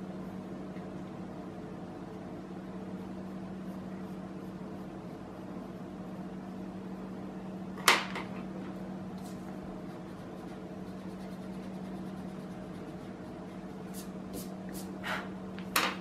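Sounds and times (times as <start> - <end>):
low electric appliance hum: 0.0 - 16.0.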